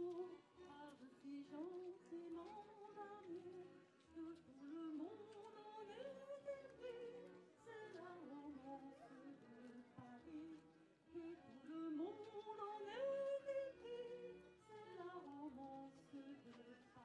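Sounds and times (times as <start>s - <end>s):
woman singing into microphone: 0.0s - 17.0s.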